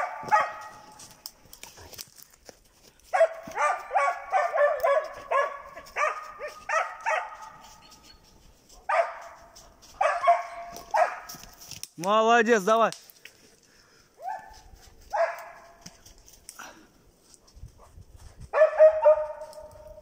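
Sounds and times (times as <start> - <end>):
dog barking: 0.0 - 0.9, 3.1 - 7.8, 8.8 - 11.4, 14.2 - 15.7, 18.5 - 20.0.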